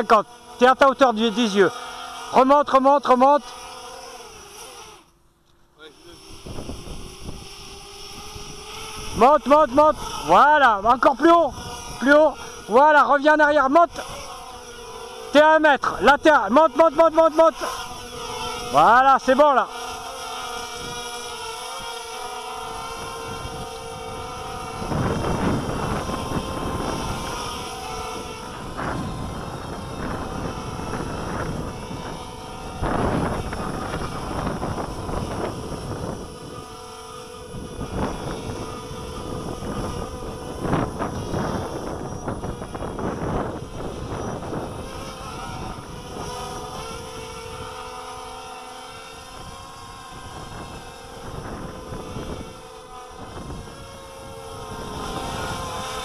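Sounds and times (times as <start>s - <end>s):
drone propellers whining: 0.0s - 56.0s
wind noise on microphone: 6.2s - 10.4s, 11.0s - 12.7s, 19.8s - 56.0s.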